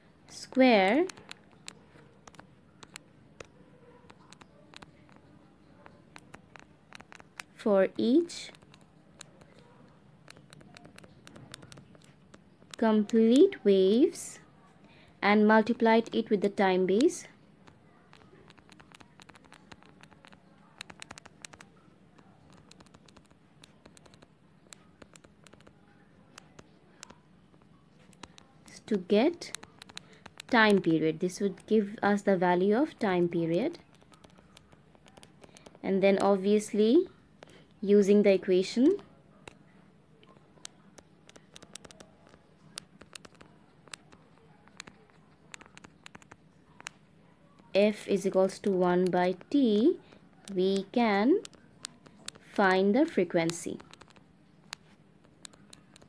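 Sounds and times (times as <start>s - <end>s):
stylus tapping on glass screen: 0.4s - 7.6s, 16.0s - 30.9s, 40.3s - 47.0s.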